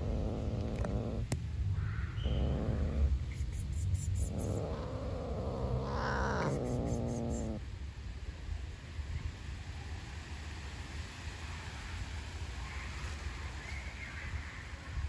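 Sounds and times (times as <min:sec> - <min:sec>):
cat growling: 0:00.0 - 0:01.3, 0:02.1 - 0:07.6.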